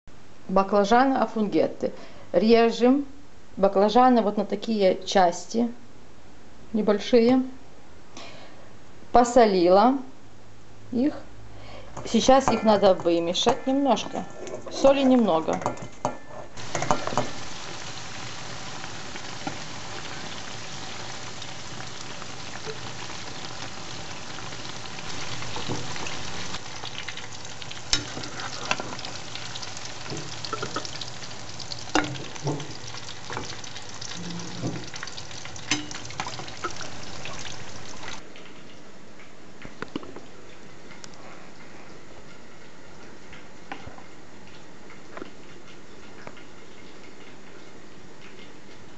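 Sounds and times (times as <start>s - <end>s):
eggplant sizzling in hot oil: 16.6s - 38.2s.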